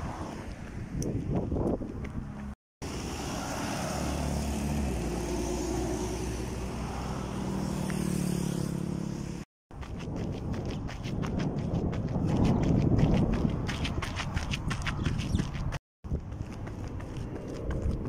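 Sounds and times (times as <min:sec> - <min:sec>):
car and motorcycle engines: 0:01.7 - 0:09.5
running footsteps: 0:09.7 - 0:18.0.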